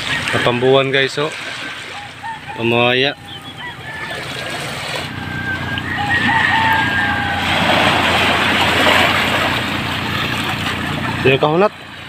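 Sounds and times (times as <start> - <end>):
waves washing over pebbles: 0.0 - 2.0, 6.2 - 12.0
low hum: 1.7 - 12.0
rooster crowing: 2.0 - 8.8.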